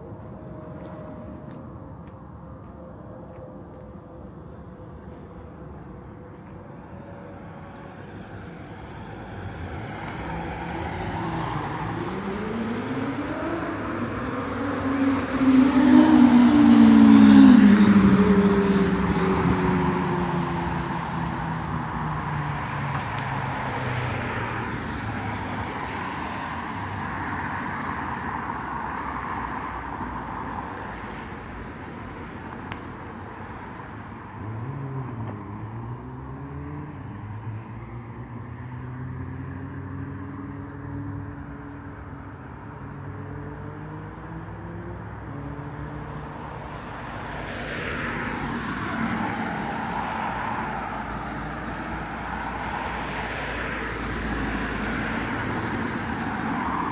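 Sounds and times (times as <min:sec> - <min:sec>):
vehicle passing by: 0:06.4 - 0:27.2, 0:34.4 - 0:56.9.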